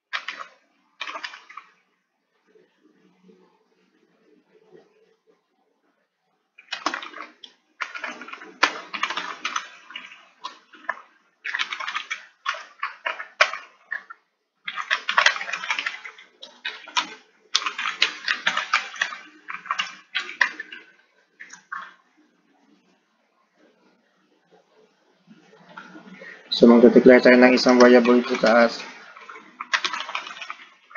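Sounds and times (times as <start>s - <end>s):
fast typing on keyboard: 0.1s - 1.8s, 6.6s - 22.0s, 26.6s - 30.9s.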